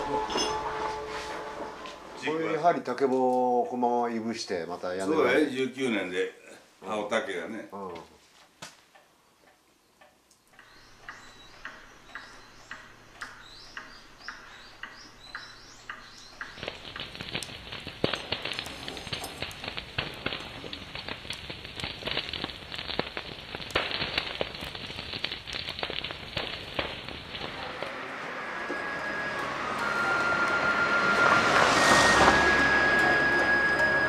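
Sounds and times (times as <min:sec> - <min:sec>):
wood fire crackling and popping: 0:00.0 - 0:05.1, 0:10.0 - 0:34.0
regular ticking: 0:08.9 - 0:27.8.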